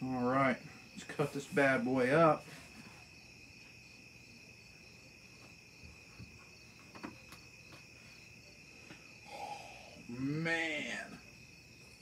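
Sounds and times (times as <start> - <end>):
crickets chirping: 0.0 - 12.0
short breathy sound: 9.2 - 10.0.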